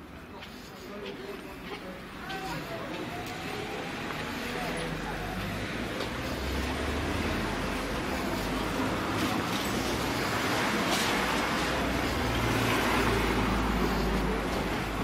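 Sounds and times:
street noise: 0:00.0 - 0:15.0.

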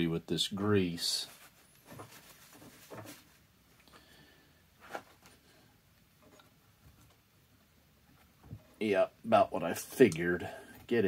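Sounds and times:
soft handling knocks and rubs: 0:01.1 - 0:03.5.

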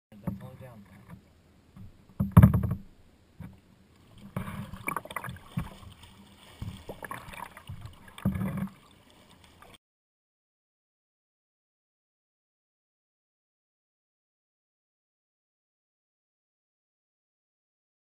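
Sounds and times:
water splashing: 0:03.4 - 0:09.8.

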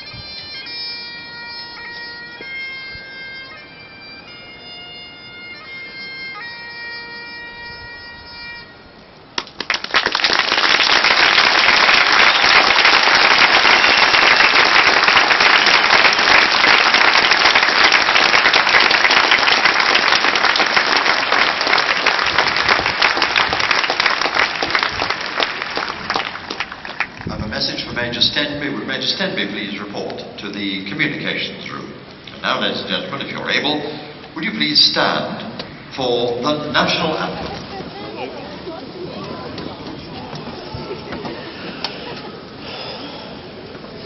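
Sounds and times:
bagpipe playing slow tune: 0:00.0 - 0:09.2
crowd applause: 0:09.4 - 0:27.3, 0:37.2 - 0:44.0.

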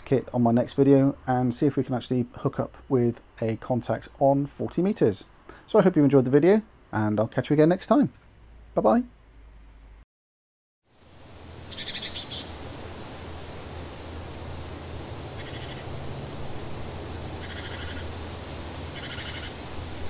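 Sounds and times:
steady low rush: 0:11.0 - 0:20.0
rapid bird trills: 0:11.7 - 0:12.6, 0:15.3 - 0:16.0, 0:17.4 - 0:18.1, 0:18.9 - 0:19.6.

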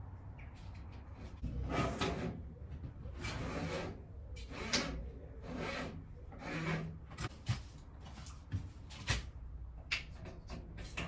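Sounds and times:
cable scraping through conduit: 0:01.0 - 0:07.3.

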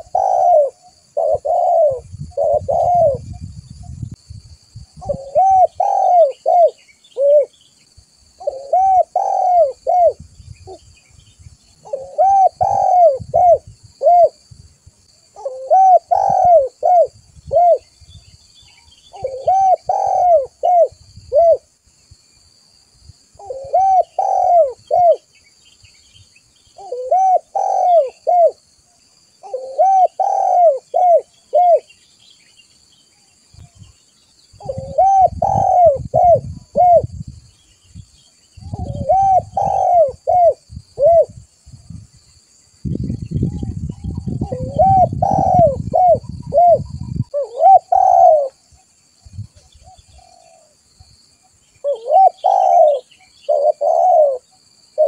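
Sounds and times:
dove cooing: 0:00.0 - 0:03.4, 0:05.0 - 0:07.6, 0:08.4 - 0:10.8, 0:11.8 - 0:14.4, 0:15.4 - 0:17.9, 0:19.1 - 0:21.7, 0:23.4 - 0:25.3, 0:26.8 - 0:28.6, 0:29.4 - 0:31.9, 0:34.6 - 0:37.2, 0:38.6 - 0:41.4, 0:43.5 - 0:48.7, 0:49.8 - 0:50.8, 0:51.8 - 0:55.0.

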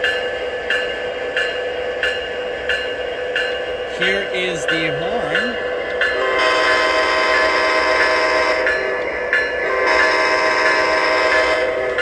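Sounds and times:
model train diesel horn: 0:06.2 - 0:08.7, 0:09.7 - 0:12.0.

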